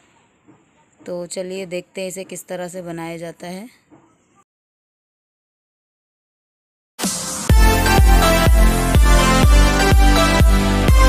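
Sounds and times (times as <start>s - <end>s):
electronic dance music: 7.0s - 11.0s
heavy bass beat: 7.0s - 11.0s.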